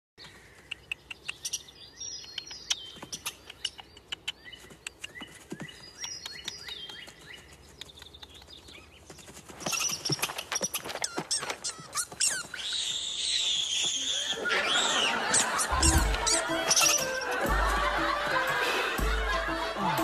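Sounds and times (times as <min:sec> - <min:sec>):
small birds chirping: 0:00.2 - 0:17.5
sharp clicks: 0:00.6 - 0:05.2
descending whistled bird calls: 0:09.6 - 0:17.4.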